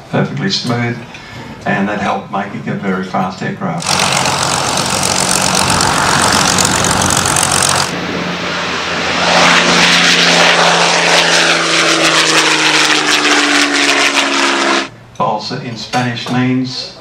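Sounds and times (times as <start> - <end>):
propeller plane engines: 3.8 - 15.2.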